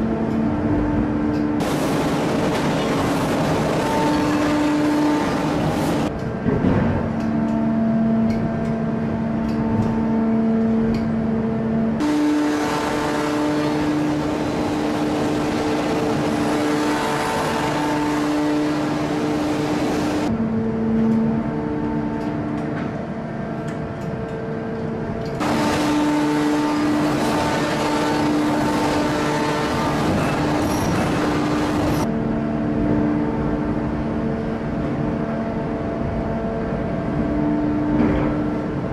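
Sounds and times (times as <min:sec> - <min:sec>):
machine whine: 0:00.0 - 0:38.9
loud rushing hiss: 0:12.0 - 0:20.3.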